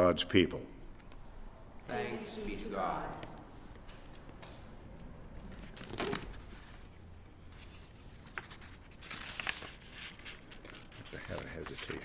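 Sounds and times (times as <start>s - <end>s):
book pages rustling: 3.2s - 12.0s.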